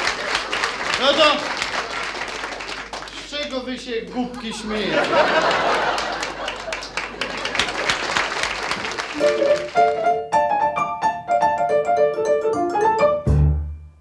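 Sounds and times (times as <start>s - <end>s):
audience applause: 0.0s - 3.7s, 4.7s - 10.2s
piano tune: 9.1s - 14.0s.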